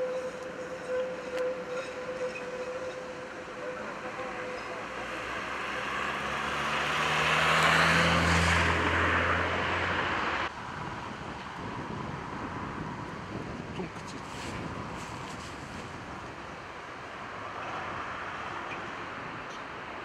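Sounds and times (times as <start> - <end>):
tram whine: 0.0 - 10.5
vehicle passing by: 3.9 - 10.5.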